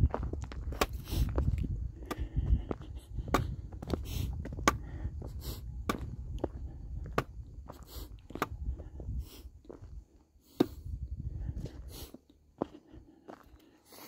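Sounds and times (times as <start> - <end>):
low rumble: 0.0 - 12.0
footsteps crunching on rocky trail: 0.0 - 14.0.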